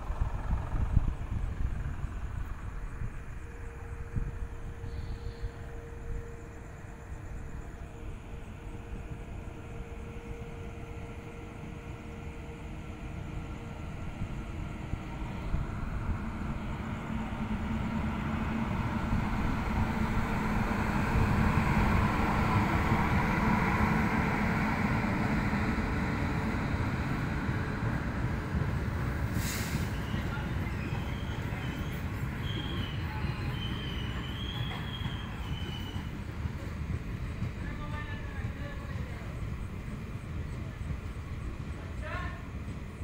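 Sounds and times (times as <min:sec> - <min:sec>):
low hum: 0:00.0 - 0:28.9
train rail rumble: 0:00.0 - 0:43.0.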